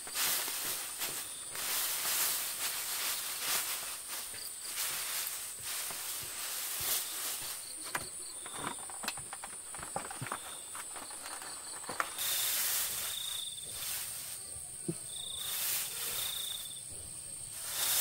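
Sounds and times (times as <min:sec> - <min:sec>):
rustling hiss: 0:00.0 - 0:18.0
light clicks and knocks: 0:07.8 - 0:12.2
high-pitched insect drone: 0:15.1 - 0:16.9.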